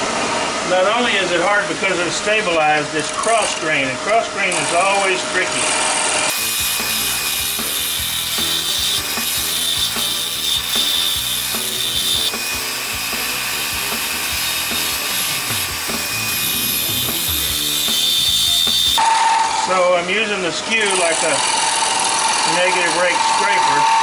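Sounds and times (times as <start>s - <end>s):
chisel scraping wood on lathe: 6.3s - 19.0s
high whine: 6.3s - 20.2s.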